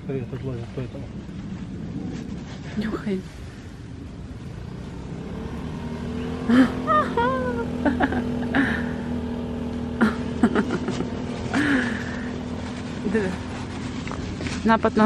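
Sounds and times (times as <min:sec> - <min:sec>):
scooter engine running: 0:04.0 - 0:15.0.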